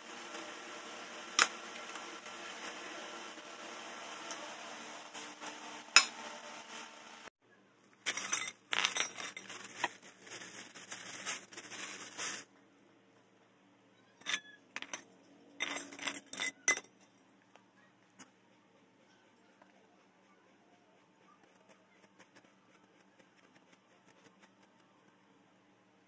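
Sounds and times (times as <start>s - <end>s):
small hard objects clinking: 8.0s - 12.5s.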